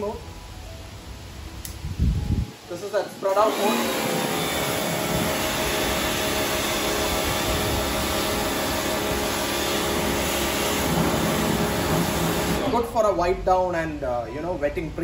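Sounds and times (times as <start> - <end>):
water spray hissing: 2.8 - 12.9
pressure washer motor humming: 3.2 - 12.9.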